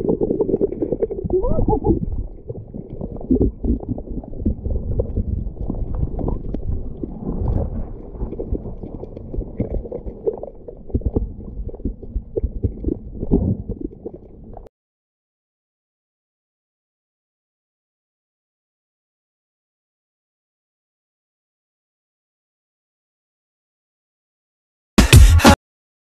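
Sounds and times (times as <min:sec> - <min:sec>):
underwater low thumps and knocks: 0:00.0 - 0:14.7
water stirred by hands: 0:00.0 - 0:14.7.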